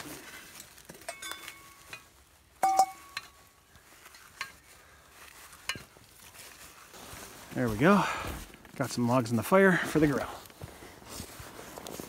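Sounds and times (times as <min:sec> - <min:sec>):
metal cookware clinking: 0:01.0 - 0:03.4.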